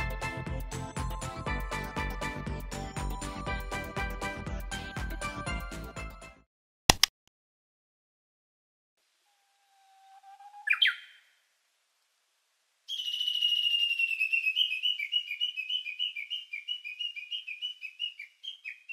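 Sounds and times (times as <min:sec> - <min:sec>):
low whistle swooping upward: 0:09.3 - 0:11.0
warbling whistled notes: 0:09.3 - 0:11.1
high whistled chirping: 0:09.3 - 0:11.3, 0:12.9 - 0:18.9.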